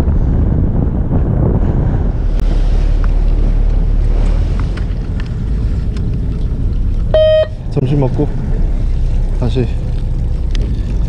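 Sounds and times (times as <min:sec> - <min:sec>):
boat engine rumble: 0:00.0 - 0:11.0
wind buffeting microphone: 0:00.0 - 0:11.0.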